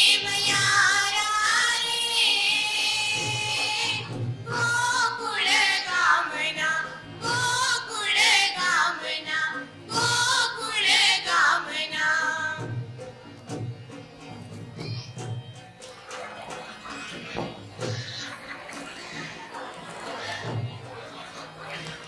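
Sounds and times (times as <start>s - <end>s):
person singing with music: 0.0s - 13.4s.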